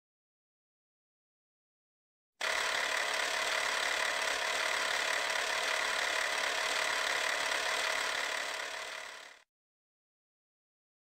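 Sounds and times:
film projector whirring: 0:02.4 - 0:09.5.

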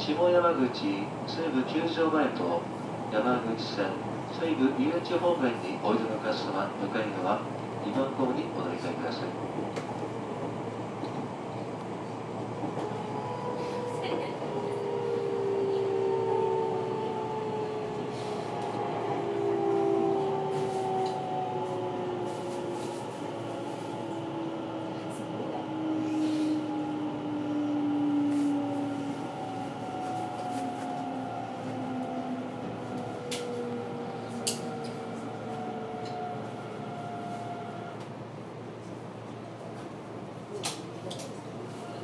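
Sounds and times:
wheels rumbling on rails: 0:09.4 - 0:39.8
train motors whining: 0:12.6 - 0:38.2.

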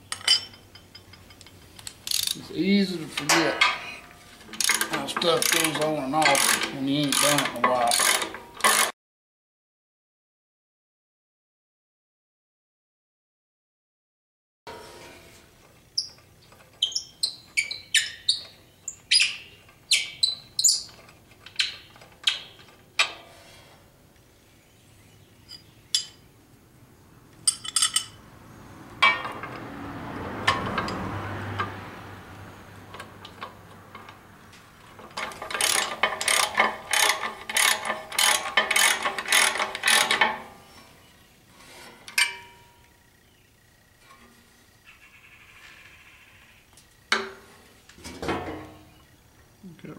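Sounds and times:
metal tools clinking: 0:00.1 - 0:08.9, 0:27.4 - 0:28.2, 0:29.0 - 0:29.7, 0:35.0 - 0:40.9, 0:41.8 - 0:42.8
ratchet wrench clicking: 0:01.8 - 0:02.4, 0:04.6 - 0:08.9, 0:35.2 - 0:40.3.

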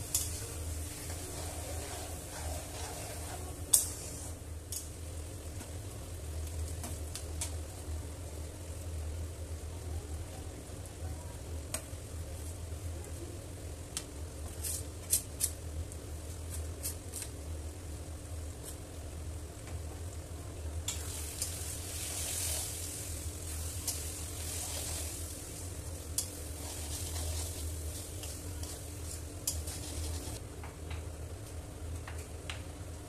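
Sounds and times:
spatula stirring: 0:00.0 - 0:04.3, 0:21.3 - 0:30.4
masala sizzling in a pan: 0:00.0 - 0:30.4
steady low hum: 0:00.0 - 0:33.0.

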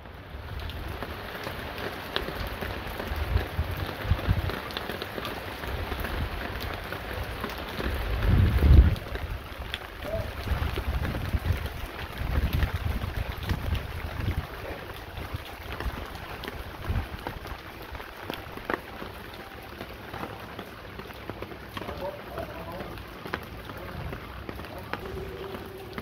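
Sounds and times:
heavy rain falling: 0:00.0 - 0:26.0
wind buffeting microphone: 0:02.8 - 0:04.8, 0:05.6 - 0:17.7.

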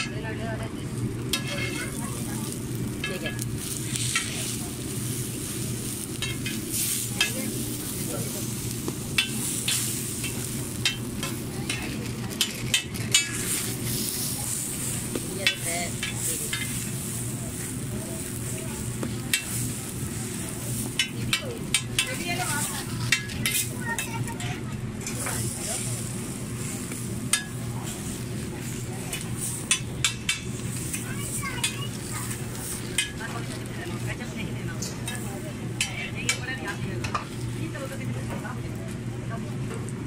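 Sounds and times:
food sizzling on a griddle: 0:00.0 - 0:40.0
steady low hum: 0:00.0 - 0:40.0
metal spatula scraping iron: 0:01.3 - 0:02.0.

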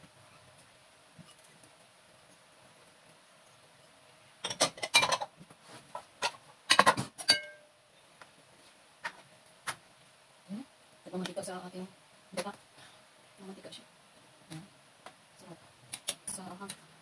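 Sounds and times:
dishes and utensils clattering: 0:04.4 - 0:05.3, 0:06.2 - 0:07.6.

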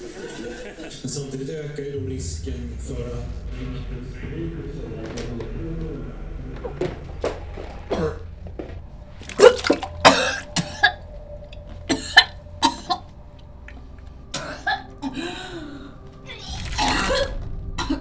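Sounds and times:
woman retching: 0:09.2 - 0:11.0.

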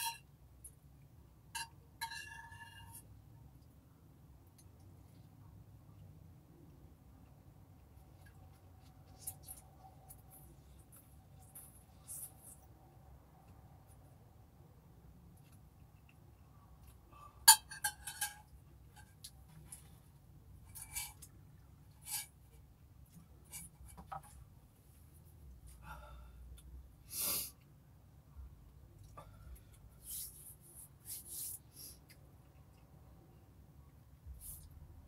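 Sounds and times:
sniffs: 0:27.0 - 0:27.6, 0:29.3 - 0:32.1.

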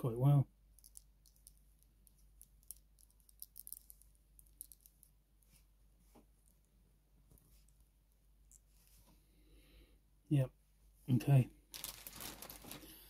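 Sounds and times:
plastic toy parts clicking: 0:00.8 - 0:05.1.

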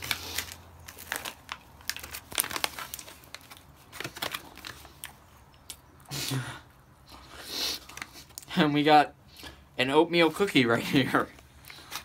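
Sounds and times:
plastic pouch crinkling: 0:00.0 - 0:05.0.

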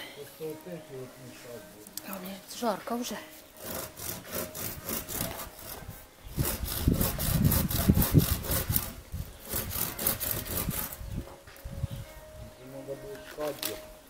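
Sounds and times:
handsaw cutting a branch: 0:03.3 - 0:11.0.

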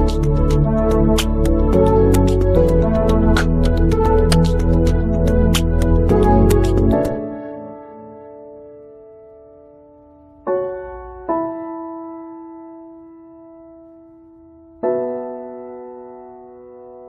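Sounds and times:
slow sustained keyboard chords: 0:00.0 - 0:16.6.

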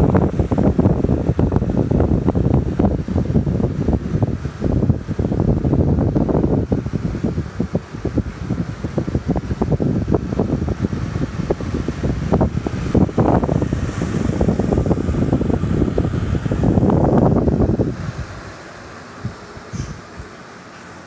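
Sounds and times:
wind buffeting microphone: 0:00.0 - 0:20.4.

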